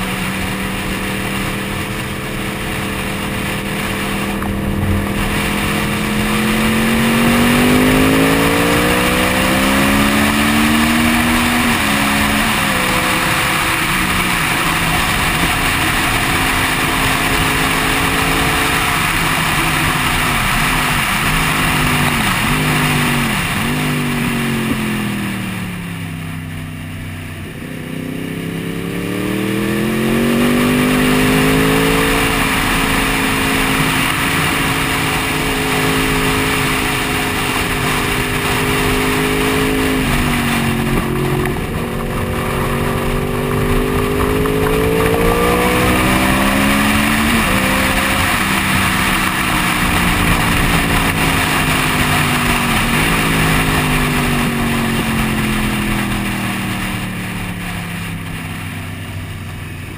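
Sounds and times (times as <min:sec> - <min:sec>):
motorcycle engine revving: 0:00.0 - 0:59.9
wind on microphone: 0:01.7 - 0:25.3.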